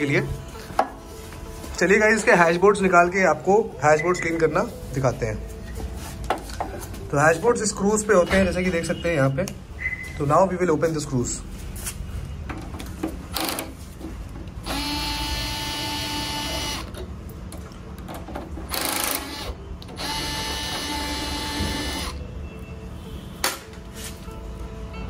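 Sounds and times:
electric screwdriver running: 14.6s - 17.0s, 18.7s - 22.2s.

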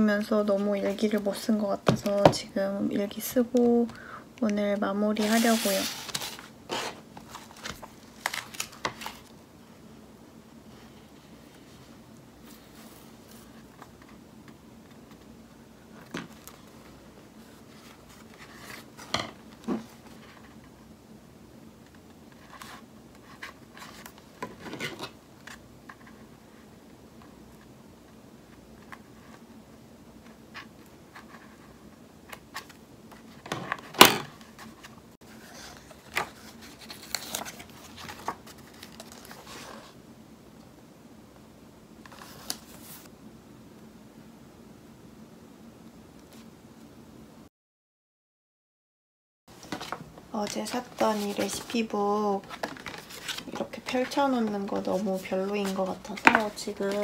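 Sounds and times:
paper rustle: 5.2s - 9.3s, 30.6s - 40.0s, 49.5s - 57.0s.

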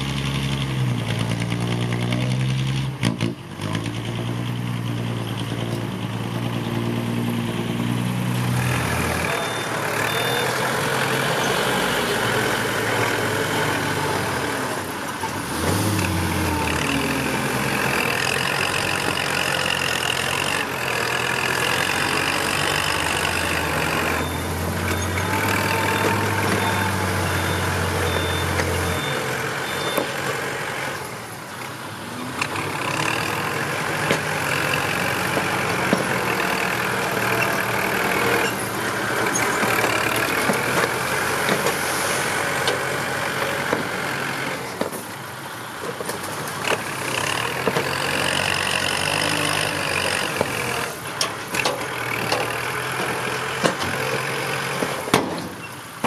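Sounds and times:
truck engine running: 4.0s - 56.0s
reversing beeper: 9.1s - 12.2s, 23.4s - 30.2s.

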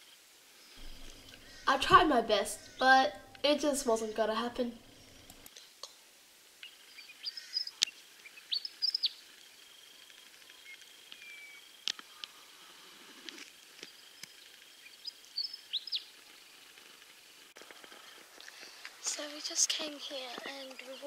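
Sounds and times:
birds chirping: 0.8s - 5.5s, 6.6s - 12.9s, 13.8s - 16.8s
sharp clicks: 5.0s - 5.6s.

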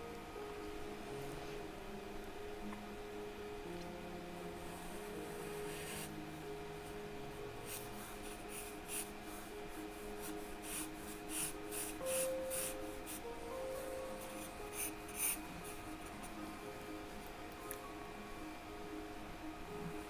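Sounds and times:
soft background music: 0.0s - 20.0s
pencil scratching on paper: 5.6s - 6.1s, 7.7s - 9.5s, 10.2s - 13.2s, 14.2s - 15.8s.

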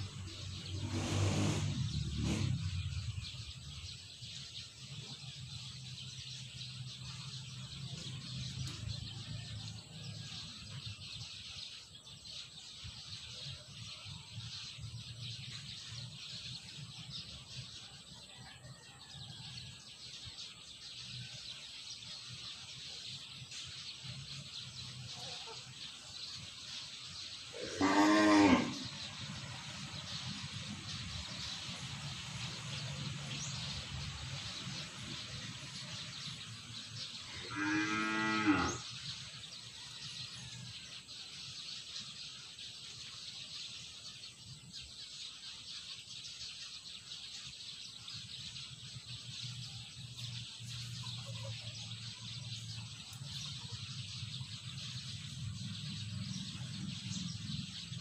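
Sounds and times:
farm animal lowing: 24.8s - 26.2s, 27.4s - 29.8s, 37.2s - 40.4s.

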